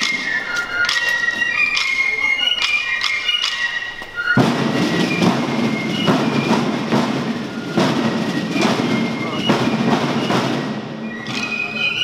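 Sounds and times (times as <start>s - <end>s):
drum beats: 0.0s - 12.0s
fifes playing a march: 0.0s - 12.0s
snare drum roll: 4.3s - 11.8s.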